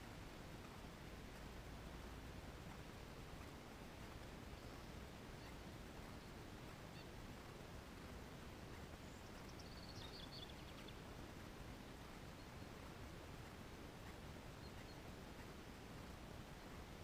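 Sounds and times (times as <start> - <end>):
steady low hiss: 0.0 - 17.0
bird chirps: 8.7 - 11.0, 14.0 - 15.5.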